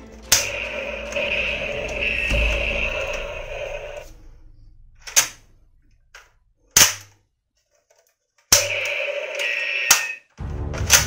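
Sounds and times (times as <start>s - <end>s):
background music: 0.0s - 6.4s, 8.6s - 11.0s.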